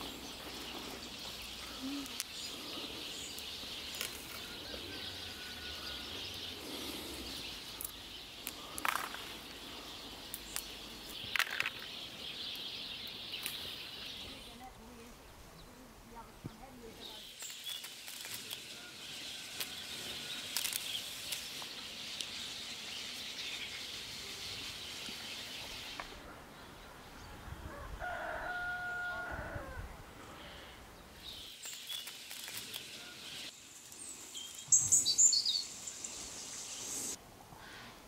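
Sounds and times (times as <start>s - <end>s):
rooster crowing: 4.4s - 6.1s, 27.7s - 29.9s
rosehips rustling into basket: 17.4s - 22.4s
bird chirps: 31.2s - 37.2s.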